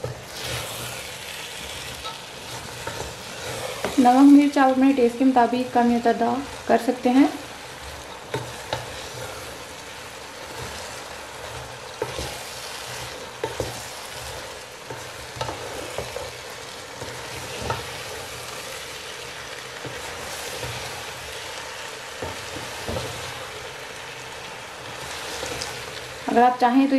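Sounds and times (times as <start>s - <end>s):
food sizzling: 0.0s - 26.9s
spatula knocking and scraping pan: 1.8s - 6.1s, 7.8s - 9.4s, 10.5s - 16.4s, 17.0s - 18.3s, 22.2s - 23.4s.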